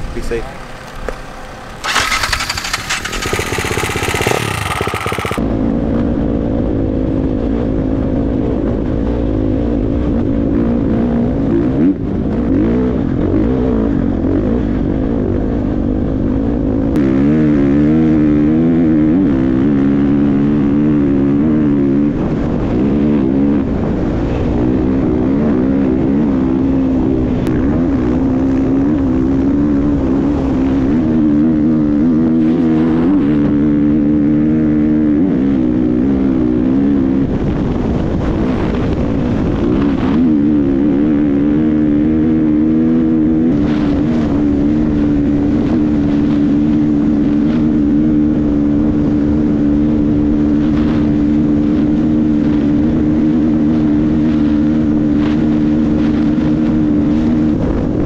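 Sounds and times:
dirt bike engine revving: 0:01.7 - 0:05.4.

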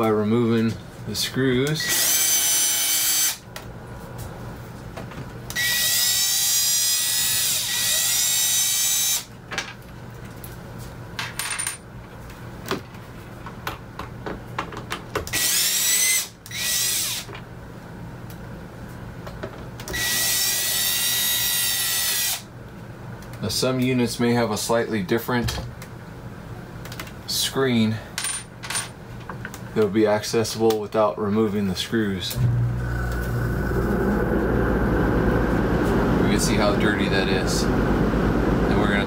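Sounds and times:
cordless drill motor whining: 0:15.4 - 0:17.2, 0:32.4 - 0:39.0
low hum: 0:32.3 - 0:39.0.

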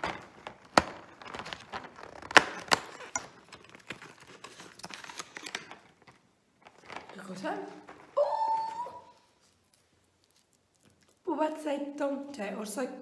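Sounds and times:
cardboard tearing and crackling: 0:00.0 - 0:06.0.

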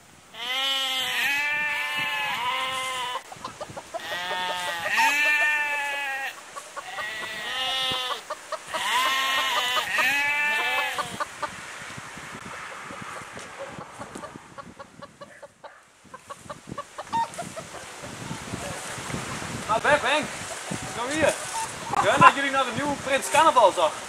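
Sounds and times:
animals bleating: 0:00.4 - 0:11.2.

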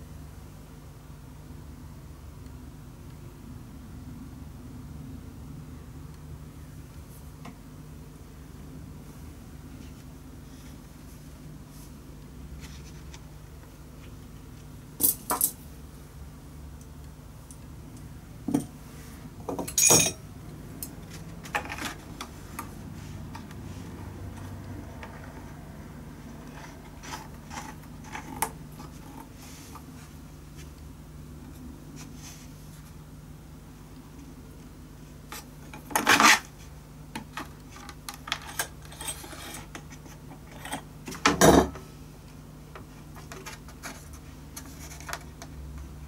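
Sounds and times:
low steady hum: 0:00.0 - 0:46.0
faint handling sounds: 0:09.0 - 0:15.8, 0:20.7 - 0:33.1, 0:41.8 - 0:46.0.

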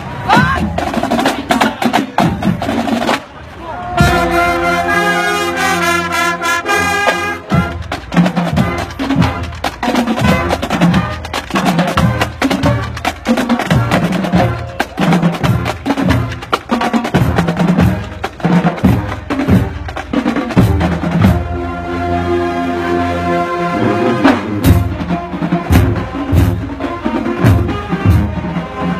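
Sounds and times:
snare and bass drums: 0:00.3 - 0:03.4, 0:06.9 - 0:21.6, 0:24.2 - 0:28.9
brass chord: 0:04.0 - 0:07.9, 0:21.2 - 0:28.9.

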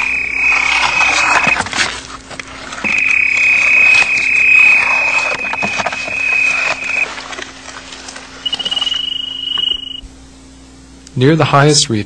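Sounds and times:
high electronic beep: 0:00.0 - 0:01.6, 0:02.8 - 0:07.1, 0:08.4 - 0:10.0
instrument scraping and knocking on rock: 0:00.0 - 0:07.4.

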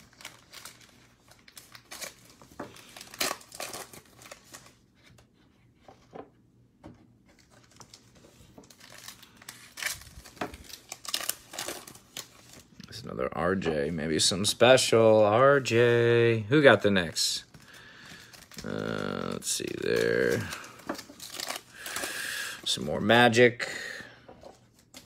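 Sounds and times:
foil wrapper crinkling and tearing: 0:00.0 - 0:04.9, 0:07.3 - 0:13.2, 0:14.6 - 0:23.4.

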